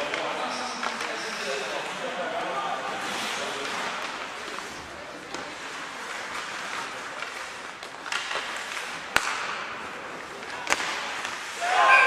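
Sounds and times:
arena noise: 0.0 - 12.0
skates hissing on ice: 2.9 - 7.7
hockey stick clicks: 5.3 - 11.6
sharp crack: 7.8 - 11.6.

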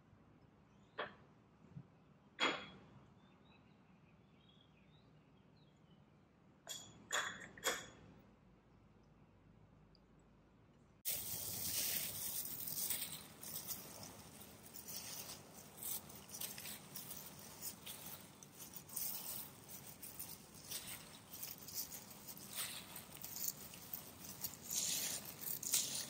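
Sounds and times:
crackly rustling of dry shreds: 11.0 - 26.0
plastic gloves rustling: 11.1 - 26.0.

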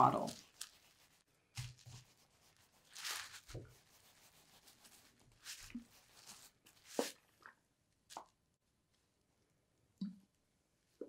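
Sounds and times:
felt rustling on bubble wrap: 0.0 - 7.3.

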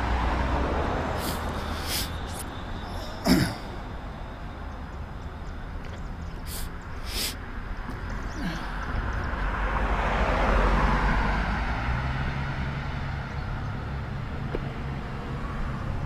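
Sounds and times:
traffic: 0.0 - 16.0
brief hisses: 1.2 - 2.4, 6.5 - 7.4.

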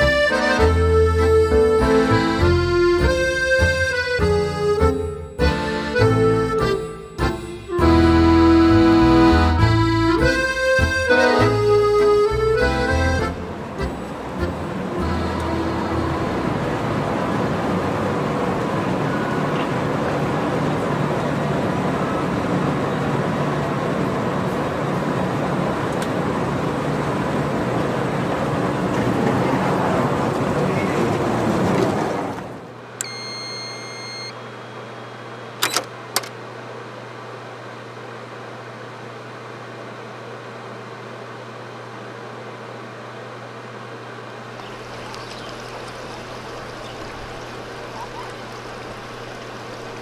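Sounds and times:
short electronic tone: 33.0 - 35.8.

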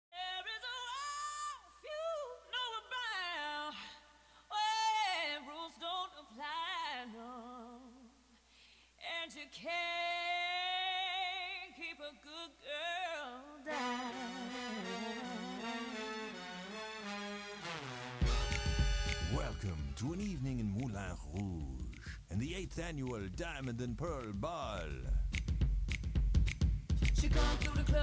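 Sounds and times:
woman singing with vibrato: 0.2 - 8.2, 9.0 - 16.2, 27.2 - 28.0
backing music: 13.7 - 28.0.

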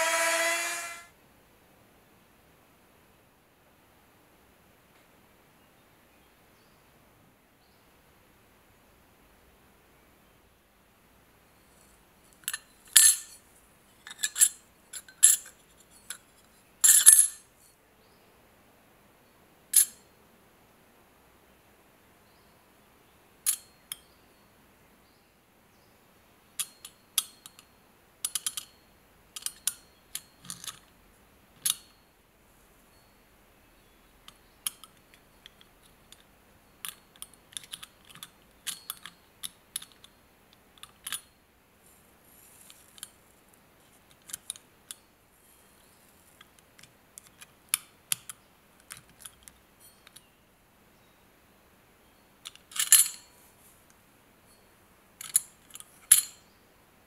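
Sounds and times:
faint scrape: 0.0 - 1.1.

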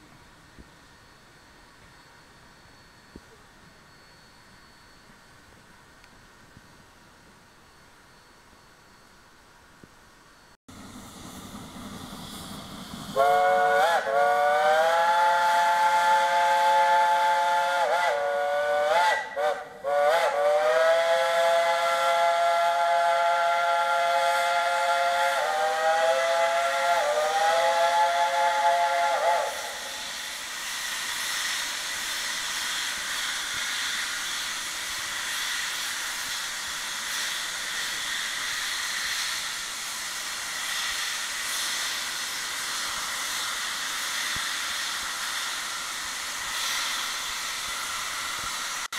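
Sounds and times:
steam hissing: 10.4 - 48.9
steam locomotive whistle: 13.0 - 48.9.

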